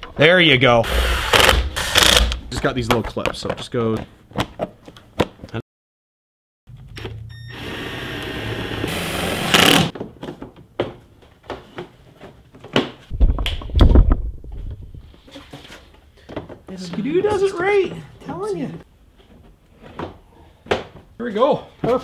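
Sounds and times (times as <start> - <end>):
cordless drill driving a screw: 0.9 - 2.4, 7.5 - 9.9
heavy thumps: 13.1 - 15.2.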